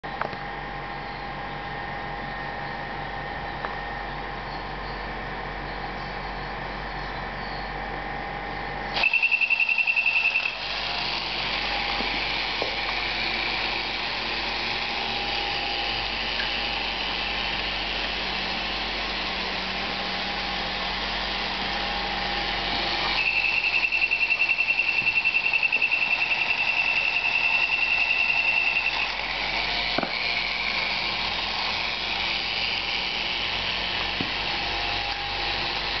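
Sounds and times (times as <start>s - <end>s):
toy motor and gears whirring: 8.9s - 36.0s
high buzzing tone: 9.0s - 36.0s.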